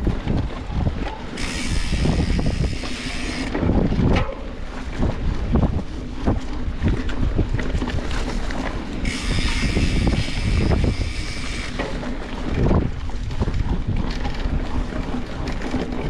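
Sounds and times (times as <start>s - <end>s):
bike knocks and rattles: 0.0s - 16.0s
wind rumbling on microphone: 0.0s - 16.0s
high whirring buzz: 1.3s - 3.8s, 9.0s - 12.0s.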